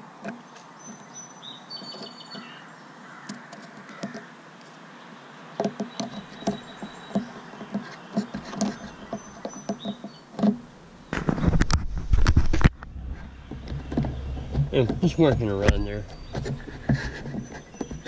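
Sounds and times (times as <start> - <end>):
microphone handling rumble: 10.4 - 18.0.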